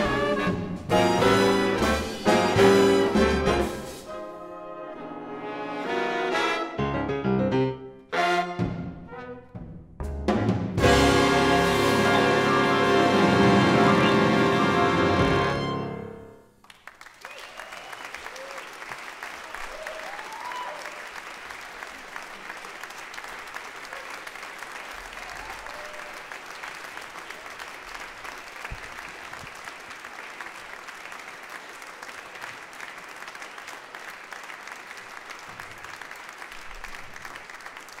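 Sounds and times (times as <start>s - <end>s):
audience applauding: 16.6s - 38.0s
audience cheering: 17.0s - 38.0s.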